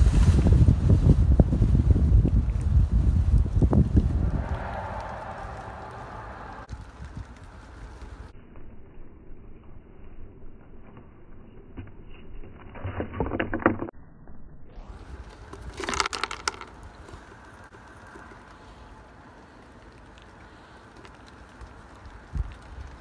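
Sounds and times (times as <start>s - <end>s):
chipmunk crunching peanuts: 15.3s - 22.9s.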